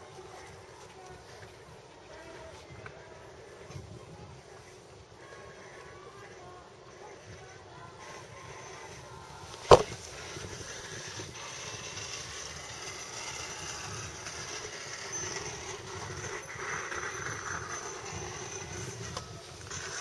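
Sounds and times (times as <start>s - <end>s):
outdoor background noise: 0.0s - 20.0s
sharp knock: 9.7s - 10.0s.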